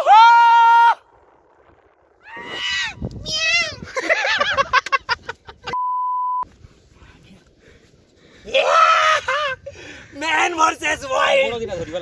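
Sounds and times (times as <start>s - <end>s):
high-pitched shouts and cries: 2.5s - 3.9s
censor beep: 5.8s - 6.4s.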